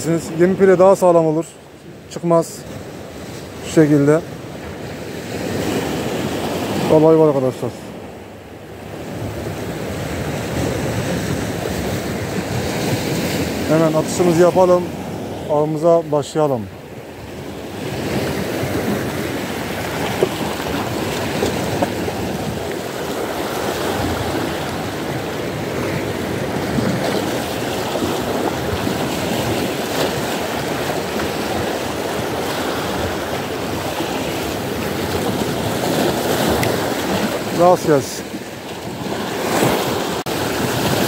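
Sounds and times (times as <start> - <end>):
sea surf washing on shore: 0.0 - 41.0
wind on microphone: 16.7 - 37.6.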